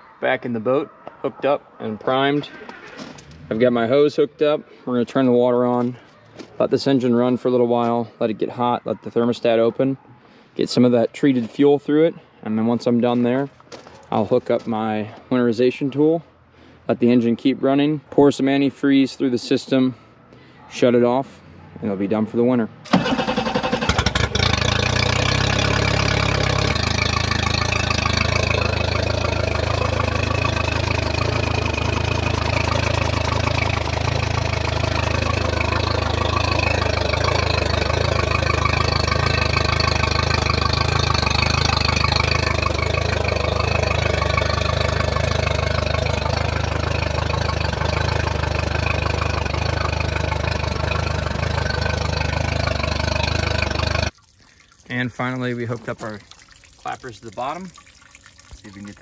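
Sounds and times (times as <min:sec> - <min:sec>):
outboard motor idling: 0:22.9 - 0:54.2.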